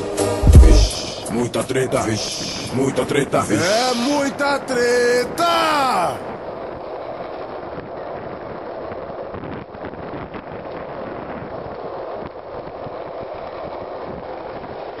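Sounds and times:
wind on microphone: 0.0 - 3.0, 6.2 - 15.0
skateboard wheels rolling on asphalt: 2.4 - 15.0.

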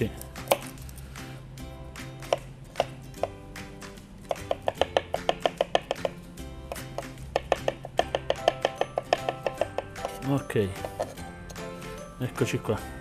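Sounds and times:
knife chopping on cutting board: 0.3 - 0.8, 2.2 - 3.4, 4.2 - 11.7.

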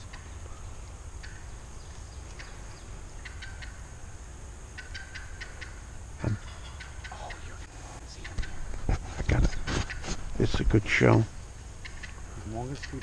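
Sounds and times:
turkey clucking and yelping: 0.0 - 1.6, 2.2 - 4.1, 4.7 - 7.6, 8.2 - 10.3, 11.8 - 13.0.

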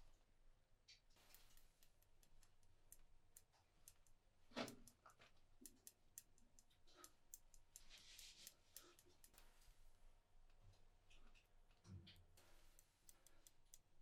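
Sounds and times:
knitting needles clicking: 1.2 - 9.6, 12.7 - 14.0
soft rustle: 7.7 - 9.6.

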